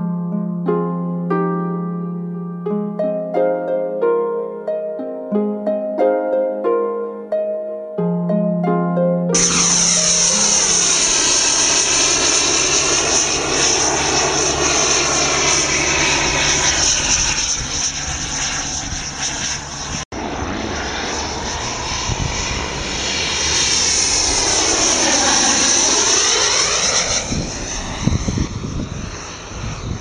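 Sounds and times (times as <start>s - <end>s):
model jet engines whining: 9.3s - 30.0s.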